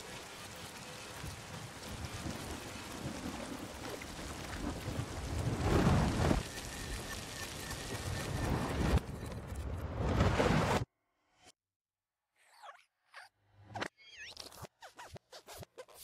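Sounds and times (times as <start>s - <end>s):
rain hissing: 0.0s - 9.0s
thunder rumbling: 1.1s - 6.6s.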